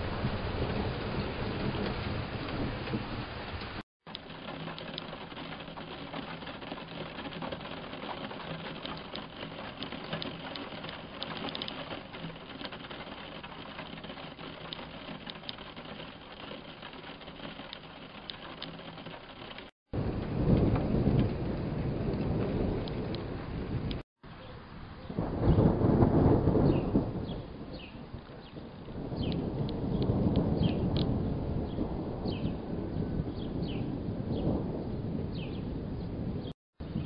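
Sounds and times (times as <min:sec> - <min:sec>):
low rumble of thunder: 0:00.0 - 0:17.8, 0:18.5 - 0:24.0, 0:25.0 - 0:37.0
steady rain: 0:00.0 - 0:24.0, 0:24.7 - 0:37.0
raindrops ticking on a surface: 0:00.2 - 0:24.0, 0:28.2 - 0:31.2.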